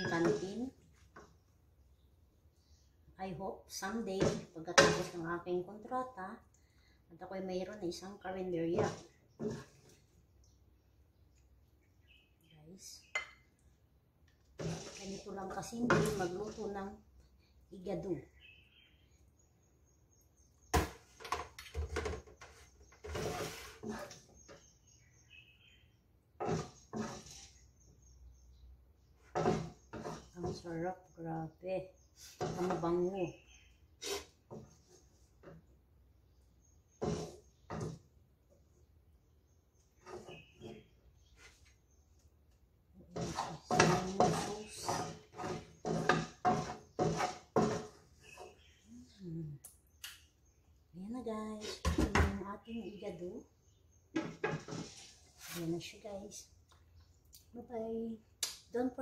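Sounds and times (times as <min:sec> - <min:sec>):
spatula scraping frying pan: 0:00.0 - 0:01.2, 0:08.7 - 0:10.1, 0:14.5 - 0:17.1, 0:22.0 - 0:25.0, 0:26.2 - 0:31.1, 0:32.0 - 0:35.7, 0:36.6 - 0:38.1, 0:39.8 - 0:41.9, 0:43.0 - 0:48.8, 0:54.1 - 0:55.6.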